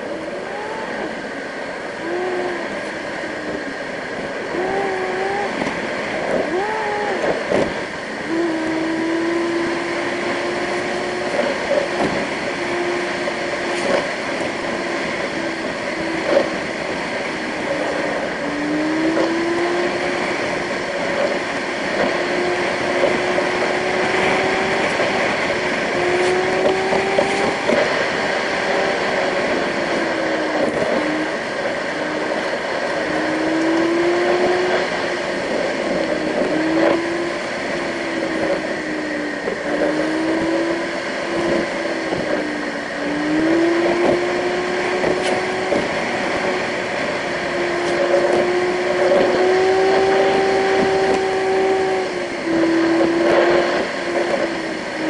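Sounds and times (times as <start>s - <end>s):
car engine hum: 0.0s - 55.0s
tyre noise inside car: 9.6s - 51.2s.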